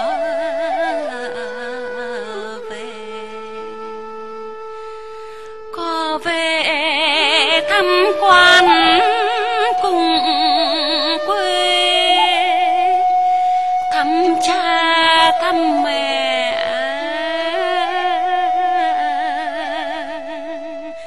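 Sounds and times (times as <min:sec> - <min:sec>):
person singing wavering notes: 0:05.7 - 0:21.0.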